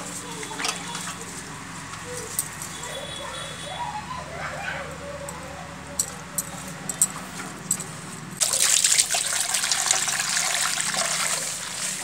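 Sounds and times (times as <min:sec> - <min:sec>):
water gushing into metal basin: 0:08.4 - 0:12.0.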